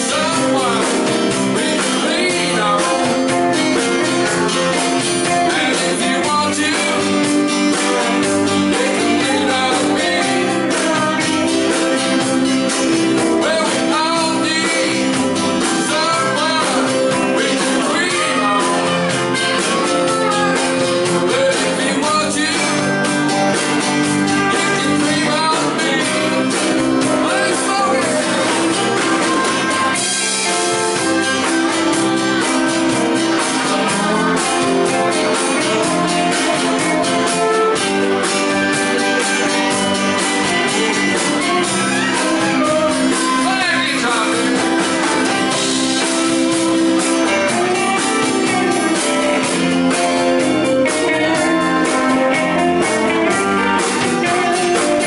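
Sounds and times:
blues-rock band playing: 0:00.0 - 0:55.0
man singing: 0:00.0 - 0:55.0.

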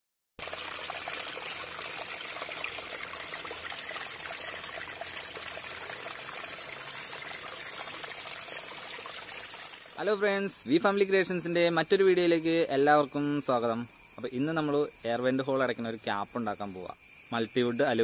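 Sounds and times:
stream trickling over rocks: 0:00.4 - 0:10.1.

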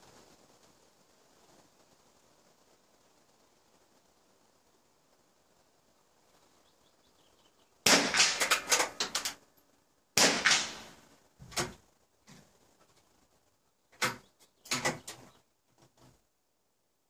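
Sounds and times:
rifle shots with echo: 0:07.8 - 0:09.3, 0:10.2 - 0:11.1.

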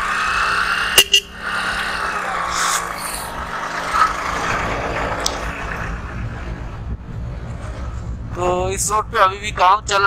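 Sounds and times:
motorcycle engine running: 0:00.9 - 0:02.3.

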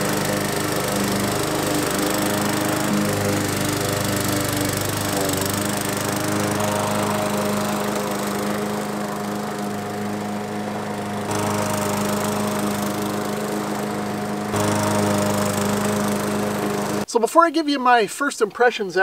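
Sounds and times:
lawn mower engine running: 0:00.0 - 0:17.1.

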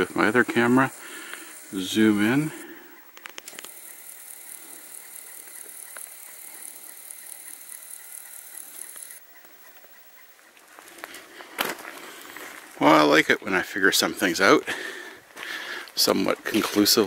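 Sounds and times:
zoom lens motor whirring: 0:00.0 - 0:10.4.

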